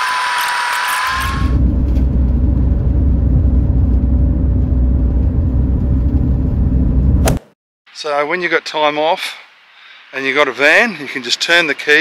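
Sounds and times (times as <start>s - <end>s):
low road rumble: 1.1s - 7.5s
hiss with steady whine: 8.0s - 12.0s.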